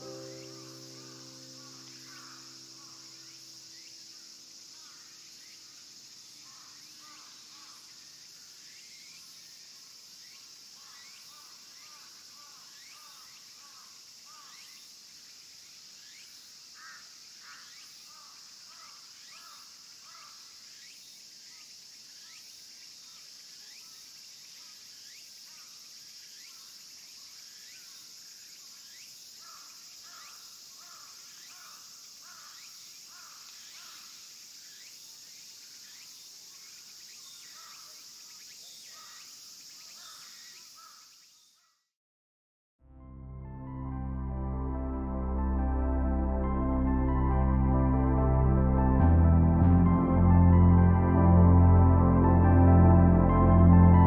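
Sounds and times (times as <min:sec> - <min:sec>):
high insect drone: 0:00.0 - 0:41.7.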